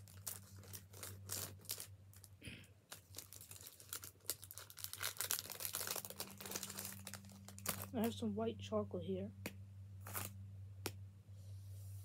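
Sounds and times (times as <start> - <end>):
wrapper crinkling and tearing: 0.0 - 8.2, 10.0 - 10.4.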